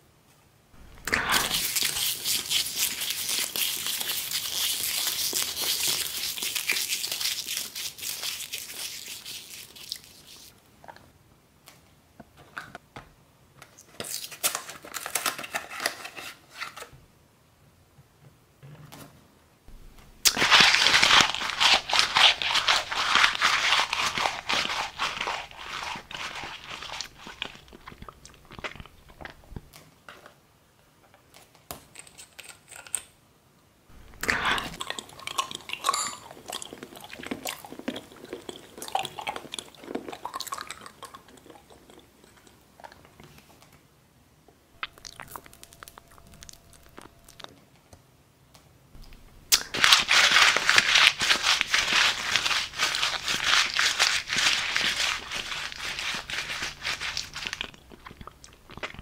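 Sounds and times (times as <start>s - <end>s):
packaging crinkling and tearing: 0.8s - 10.0s, 13.9s - 16.9s, 20.1s - 29.7s, 49.0s - 59.0s.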